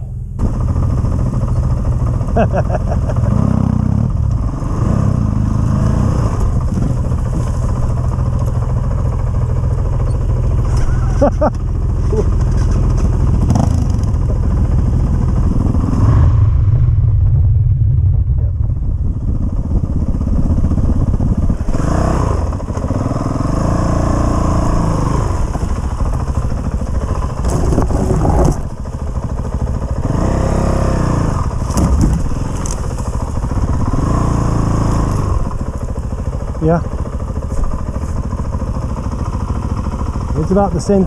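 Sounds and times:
dirt bike engine revving: 0.0s - 16.7s, 19.9s - 35.7s
bike knocking and rattling: 6.4s - 15.7s, 25.4s - 30.4s, 31.4s - 34.3s, 35.1s - 41.0s.

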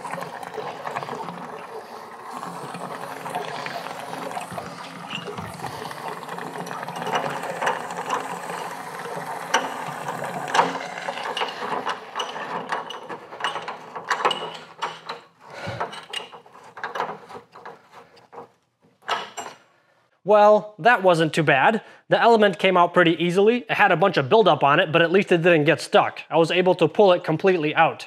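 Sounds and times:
water spilling into a bucket: 0.0s - 14.8s
metallic clicking and rattling: 2.5s - 19.6s.

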